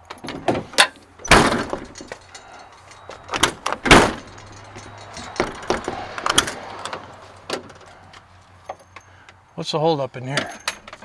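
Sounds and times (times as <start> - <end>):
truck door latch clunking: 0.1 - 8.0.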